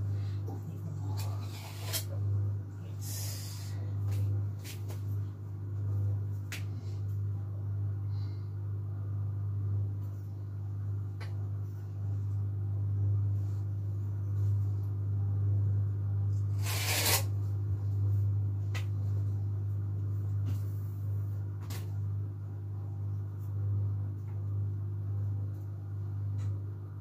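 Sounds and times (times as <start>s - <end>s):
steady low hum: 0.0s - 27.0s
scrape on countertop: 1.2s - 2.1s, 16.6s - 17.3s.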